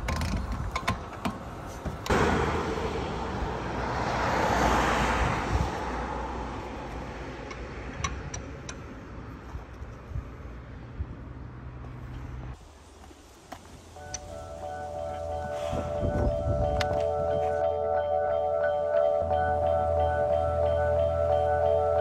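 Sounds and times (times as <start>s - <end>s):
vehicle passing: 2.1s - 12.6s.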